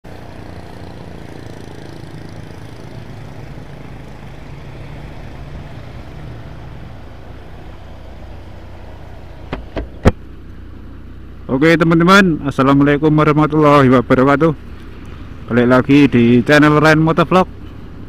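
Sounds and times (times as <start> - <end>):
wind and road noise: 0.0 - 18.0
motorcycle engine running: 0.1 - 11.5.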